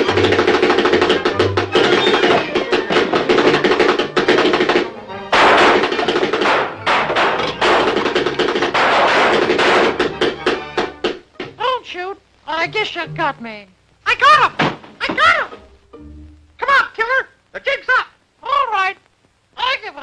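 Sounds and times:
fast cartoon music: 0.0 - 11.3, 12.5 - 14.5.

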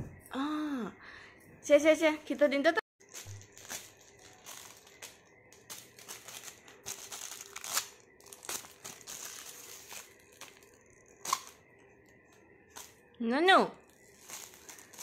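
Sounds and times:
plastic bag crinkling: 3.0 - 11.6, 13.8 - 15.0.

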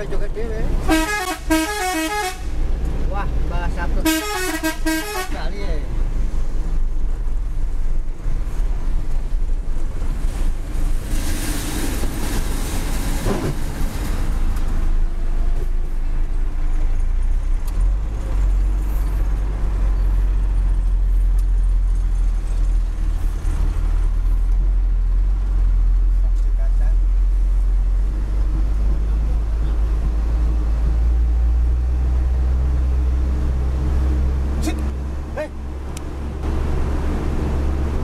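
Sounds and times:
diesel truck engine rumble: 0.0 - 38.0.

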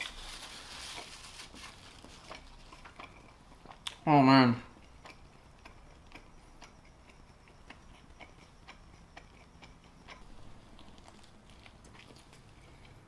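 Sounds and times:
wet chewing mouth clicks: 2.0 - 4.1, 4.7 - 13.0.

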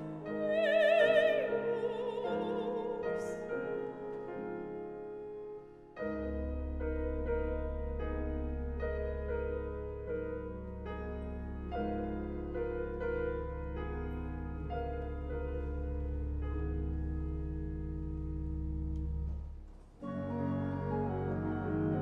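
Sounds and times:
piano chords: 0.0 - 22.0.

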